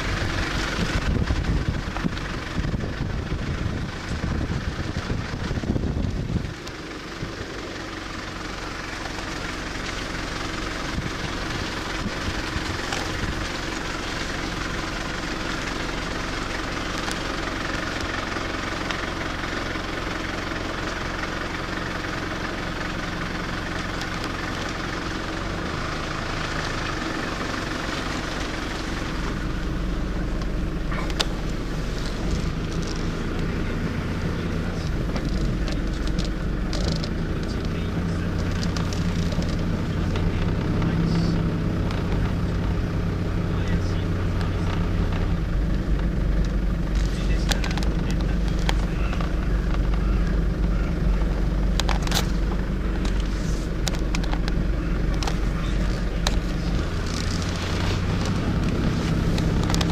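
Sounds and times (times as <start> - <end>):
wind rumble on microphone: 0.0 - 7.4
car engine and road noise: 0.0 - 59.9.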